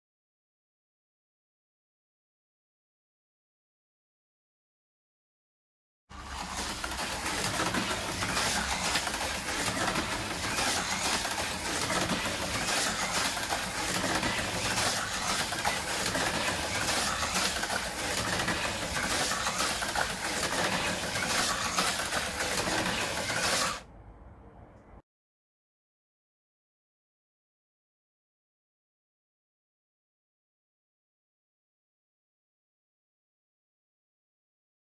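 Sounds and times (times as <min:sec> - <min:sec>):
slot car motor whirring: 0:06.1 - 0:23.8.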